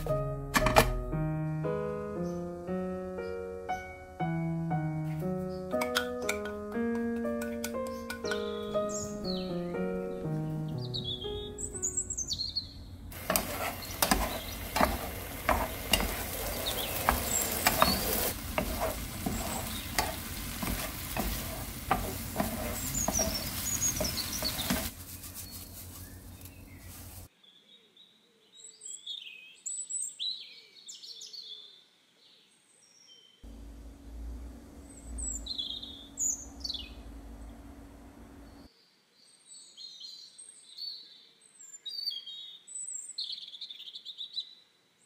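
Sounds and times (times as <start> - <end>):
birds chirping: 1.3 - 27.3, 33.5 - 38.7
vegetable slices sizzling in pan: 13.1 - 27.3, 33.5 - 38.6
spatula scraping against pan: 13.2 - 25.0.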